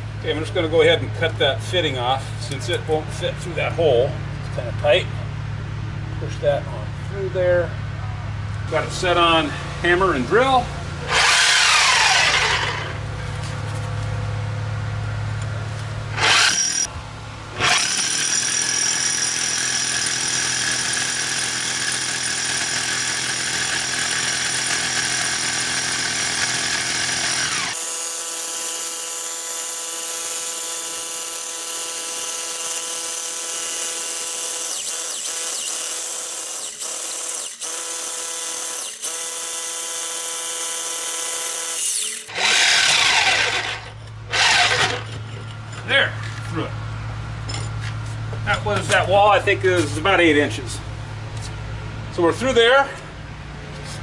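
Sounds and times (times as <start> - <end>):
rotary hammer drilling concrete: 11.0 - 13.0, 16.1 - 16.9, 17.5 - 45.2.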